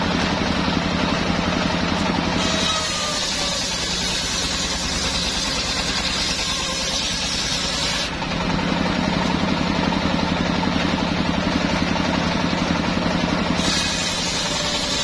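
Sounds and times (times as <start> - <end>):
engine running: 0.0 - 15.0
spinning saw blade hum: 0.0 - 15.0
saw blade cutting wood: 1.9 - 8.3, 13.4 - 15.0.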